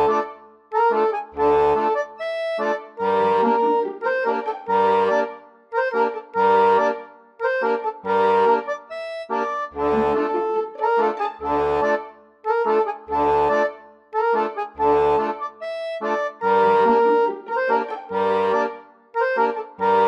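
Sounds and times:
sustained melody notes: 0.0 - 20.0.

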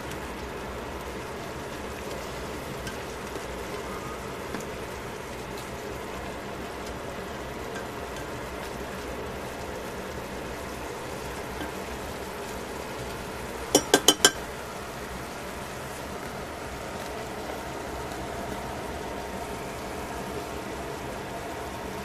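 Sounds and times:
broth simmering and bubbling: 0.0 - 22.0
tongs stirring in a metal pot: 13.7 - 14.5
tongs clicking: 13.8 - 14.4.

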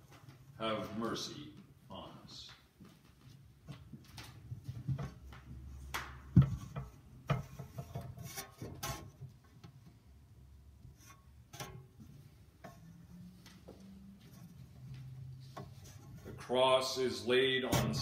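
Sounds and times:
footsteps: 0.0 - 6.5, 12.6 - 16.5.

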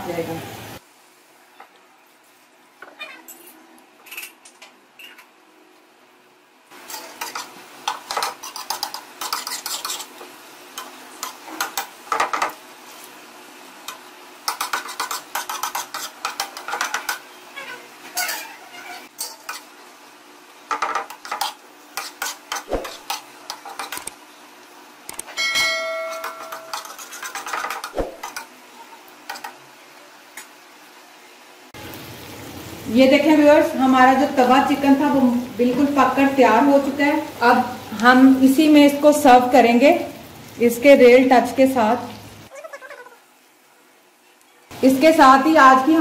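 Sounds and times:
faint sizzle: 0.0 - 46.0
metal spatula scraping a griddle: 6.8 - 10.2, 14.5 - 19.7, 20.8 - 24.0, 25.8 - 27.9
metallic clang: 25.4 - 26.7.

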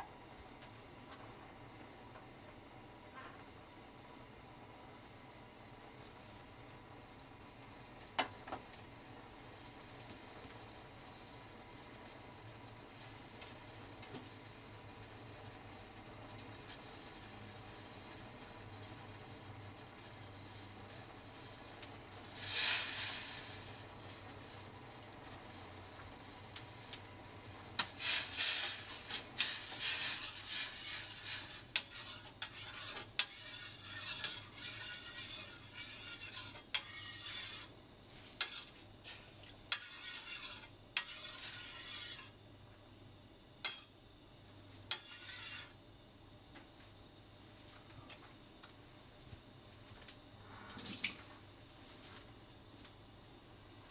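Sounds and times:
metal spoon stirring in saucepan: 27.8 - 42.3, 43.6 - 43.9, 44.9 - 45.8.

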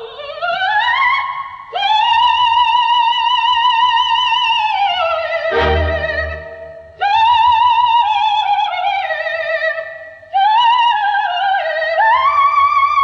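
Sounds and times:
high vibrato melody: 5.5 - 7.0
low struck note: 5.6 - 6.9.

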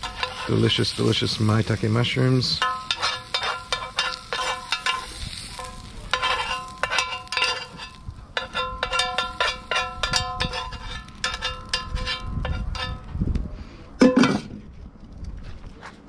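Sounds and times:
metal tongs clinking on skillet: 0.0 - 1.2, 2.5 - 13.1.

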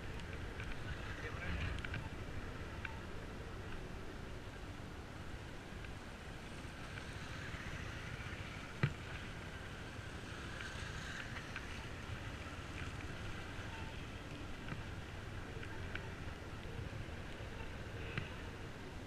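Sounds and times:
light ticks: 2.8 - 3.0, 5.8 - 6.0, 10.5 - 15.0, 15.6 - 18.5.

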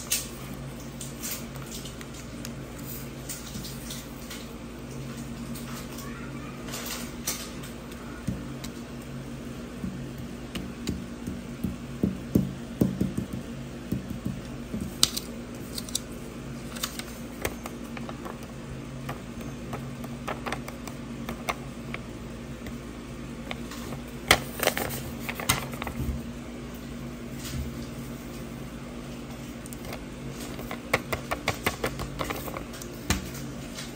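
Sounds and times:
steady low hum: 0.0 - 33.9
paper rustling on a table: 14.9 - 18.4, 23.5 - 26.2, 29.8 - 33.9.

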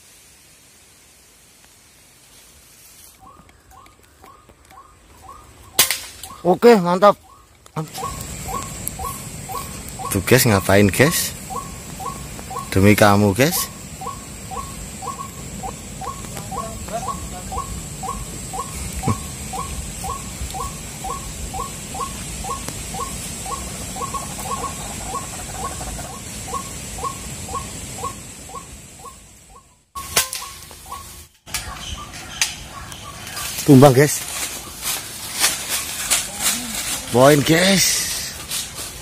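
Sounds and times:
waterhen calling: 3.2 - 33.7
steady high-pitched whine: 5.7 - 39.0.

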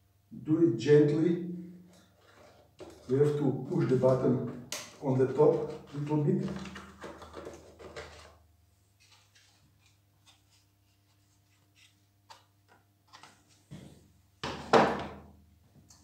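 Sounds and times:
plastic scrape and clatter: 1.9 - 3.2, 5.5 - 8.4.

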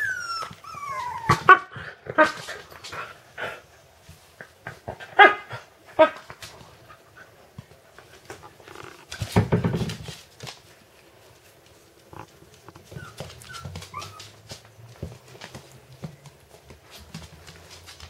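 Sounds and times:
puppies whimpering and squeaking: 0.0 - 1.5, 12.8 - 14.6
paws pattering on wooden floor: 6.2 - 18.0.

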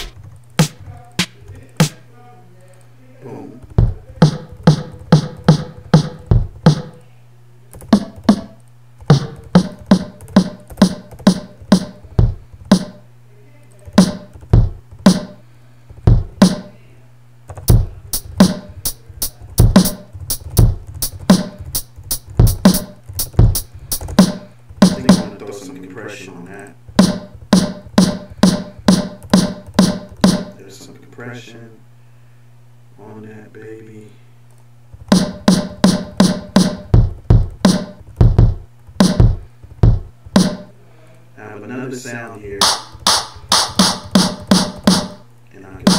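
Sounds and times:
drum beat with kick and snare: 0.0 - 2.0, 3.8 - 7.0, 7.8 - 13.1, 14.0 - 15.4, 16.0 - 16.8, 17.6 - 25.4, 26.9 - 30.6, 35.0 - 40.7, 42.6 - 45.2
faint low hum: 0.0 - 43.5.

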